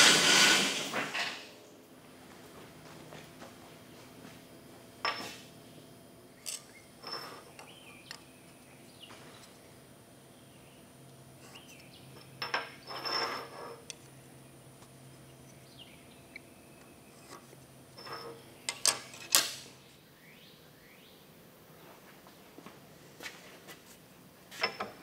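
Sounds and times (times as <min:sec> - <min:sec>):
steel bars clinking and scraping: 0:06.4 - 0:07.8, 0:11.6 - 0:14.1, 0:18.0 - 0:19.6.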